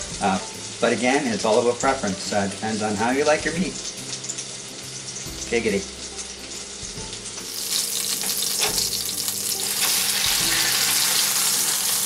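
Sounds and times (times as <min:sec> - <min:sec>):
burger patty sizzling in a pan: 0:00.0 - 0:12.0
spatula scraping a pan: 0:09.7 - 0:12.0.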